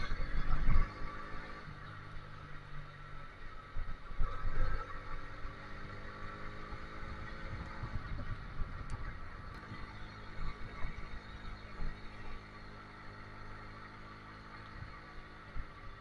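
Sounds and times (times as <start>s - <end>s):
small motorbike engine running: 0.0s - 16.0s
wind buffeting microphone: 7.1s - 11.2s.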